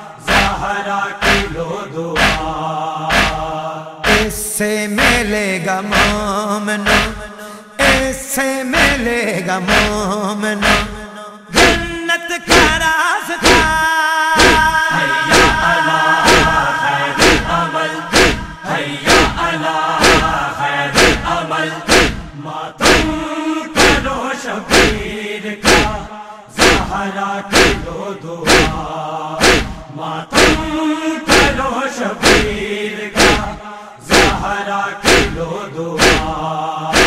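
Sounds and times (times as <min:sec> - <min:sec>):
many voices chanting: 0:00.0 - 0:11.9, 0:12.5 - 0:37.0
crowd beating chests: 0:00.2 - 0:01.6, 0:02.2 - 0:04.4, 0:05.0 - 0:08.2, 0:08.8 - 0:09.1, 0:09.7 - 0:11.0, 0:11.6 - 0:11.9, 0:12.5 - 0:12.8, 0:13.4 - 0:13.8, 0:14.4 - 0:24.1, 0:24.7 - 0:31.6, 0:32.2 - 0:32.6, 0:33.2 - 0:35.4, 0:36.0 - 0:37.0.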